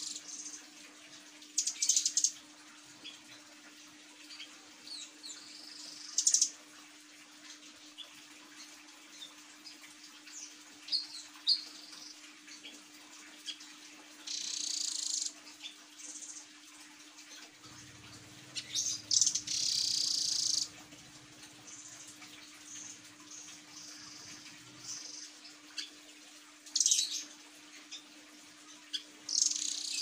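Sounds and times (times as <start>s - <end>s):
bird buzzy high trills: 17.6s - 25.4s.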